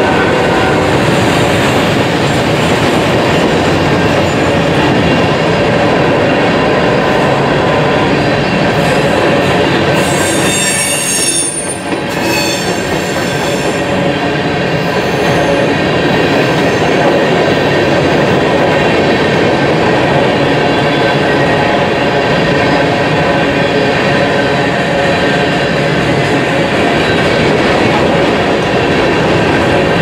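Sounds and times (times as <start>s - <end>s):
high metallic squeal: 10.0s - 13.9s.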